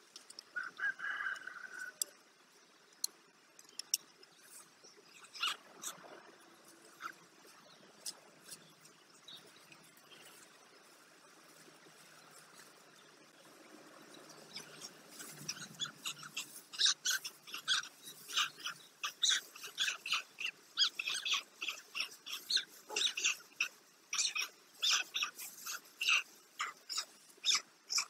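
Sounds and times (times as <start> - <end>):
stork chicks calling: 14.3 - 28.0.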